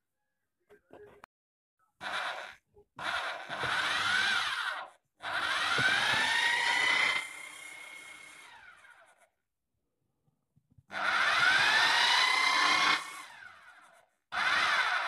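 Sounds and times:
drill whine spinning without load: 0:02.0 - 0:09.3, 0:10.9 - 0:15.0.

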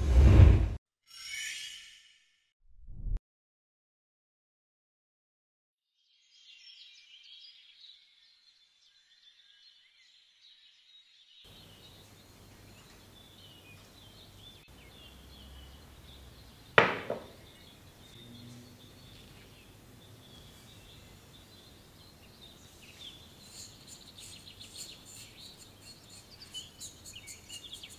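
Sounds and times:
birds chirping: 0:11.5 - 0:27.9
glass cup set down on table: 0:16.8 - 0:17.4.

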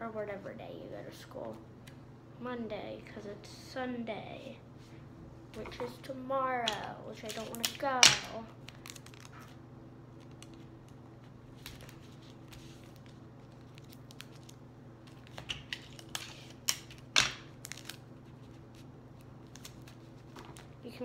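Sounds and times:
low steady hum: 0:00.0 - 0:21.0
taped paper crinkling: 0:08.6 - 0:20.9.

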